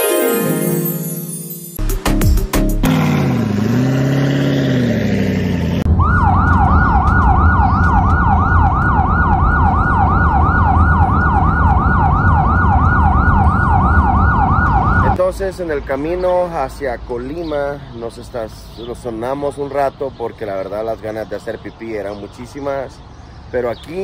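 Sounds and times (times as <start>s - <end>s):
low road rumble: 2.8s - 24.0s
siren yelping: 5.8s - 15.2s.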